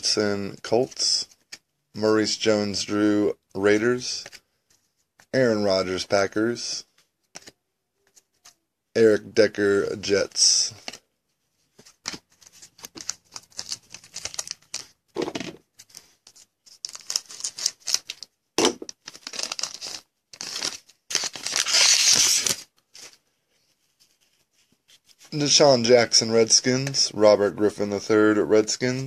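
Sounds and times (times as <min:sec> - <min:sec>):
foil wrapper crinkling: 0:12.8 - 0:14.9, 0:16.7 - 0:18.2, 0:18.9 - 0:23.2
foil wrapper ripping: 0:19.1 - 0:22.6.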